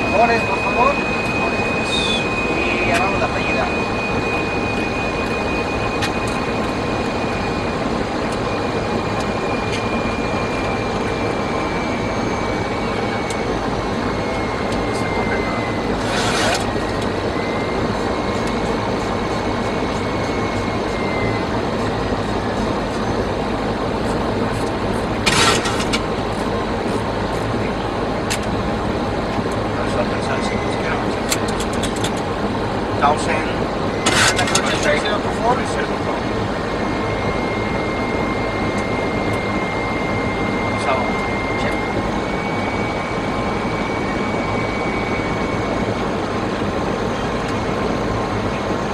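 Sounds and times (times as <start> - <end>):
faint high whine: 0.0 - 48.9
jet flight-deck airflow and engines: 0.0 - 48.9.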